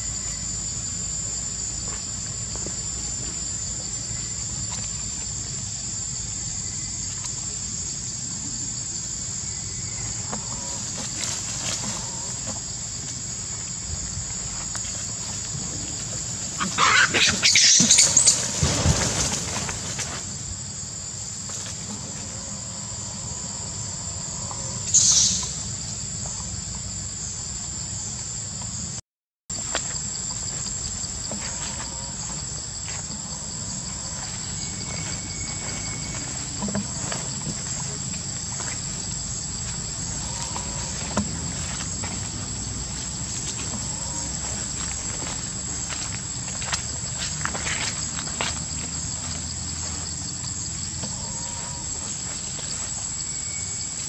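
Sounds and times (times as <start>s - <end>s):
insect chorus: 0.0s - 54.0s
baby monkey screeching: 16.6s - 18.4s.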